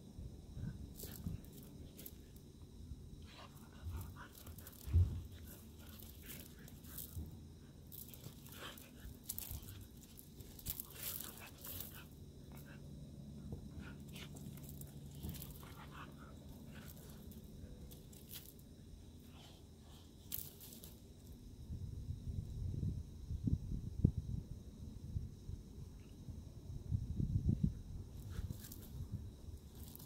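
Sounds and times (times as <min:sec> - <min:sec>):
paws scuffling in gravel: 0:03.5 - 0:12.2.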